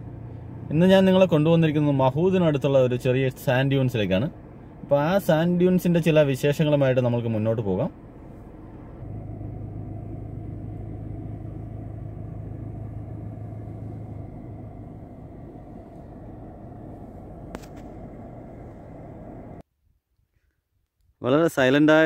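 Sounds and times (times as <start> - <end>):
car driving rumble: 0.0 - 19.6
low hum: 7.9 - 19.6.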